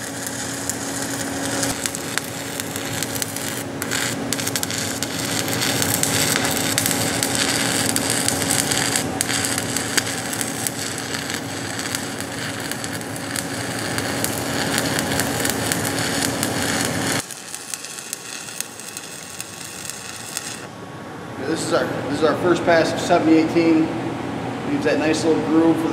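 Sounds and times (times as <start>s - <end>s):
welding arc crackling: 0.0s - 20.7s.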